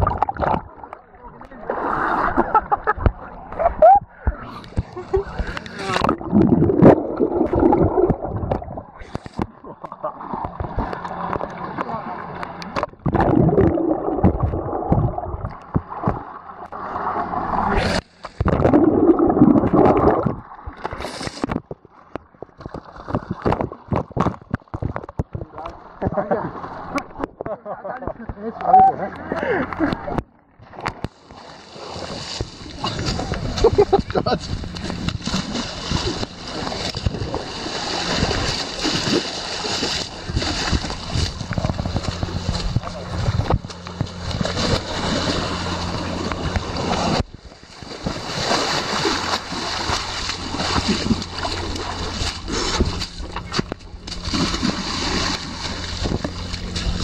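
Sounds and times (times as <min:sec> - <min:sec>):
water sloshing and splashing: 0:00.0 - 0:57.0
footsteps splashing through mud: 0:31.7 - 0:57.0.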